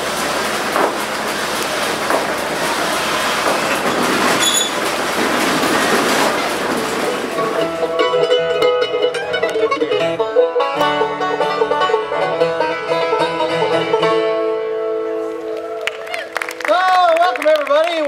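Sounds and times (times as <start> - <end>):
bluegrass band playing: 5.4 - 16.6.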